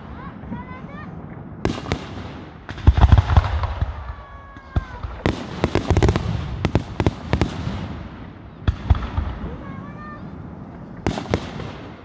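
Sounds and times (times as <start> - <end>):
fireworks bangs: 0.0 - 10.3, 10.9 - 12.0
rapid firework cracks: 1.6 - 10.2, 11.0 - 12.0.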